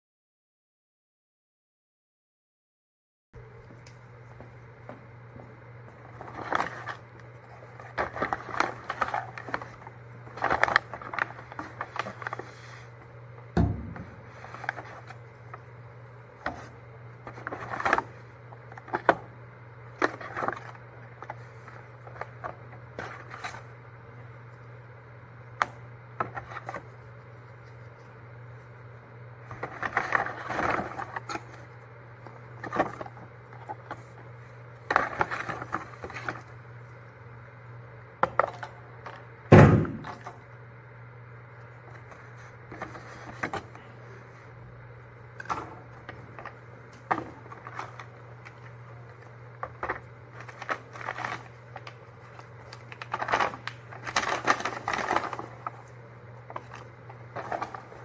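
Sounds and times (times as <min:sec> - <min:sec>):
steady low hum: 0:03.4 - 0:58.0
paper bags rustling: 0:05.9 - 0:13.1, 0:13.8 - 0:15.8, 0:16.5 - 0:19.2, 0:19.9 - 0:23.7, 0:29.4 - 0:34.2, 0:34.8 - 0:36.6, 0:41.9 - 0:44.2, 0:45.3 - 0:58.0
loud knock: 0:13.6 - 0:14.1, 0:39.5 - 0:40.1.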